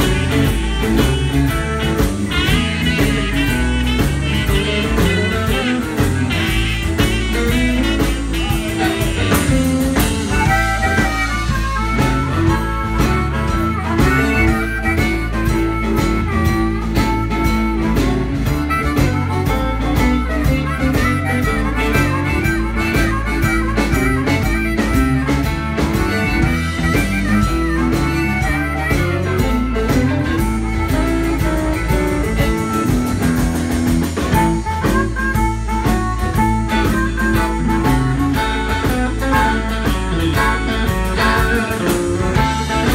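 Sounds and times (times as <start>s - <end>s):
electric guitars: 0.0s - 42.9s
harmonica solo: 0.0s - 42.9s
keyboard: 0.0s - 42.9s
steady drum beat: 0.0s - 42.9s.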